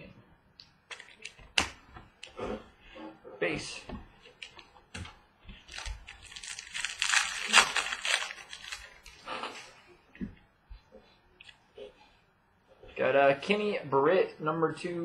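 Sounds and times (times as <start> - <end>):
foil pack tearing and crinkling: 5.6 - 9.7.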